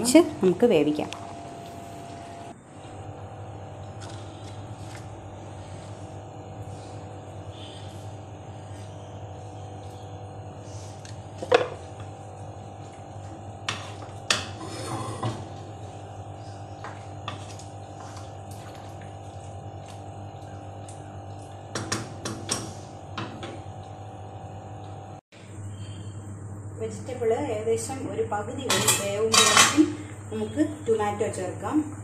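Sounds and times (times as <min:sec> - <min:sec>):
wooden spoon scraping a pan: 0:13.7 - 0:15.4.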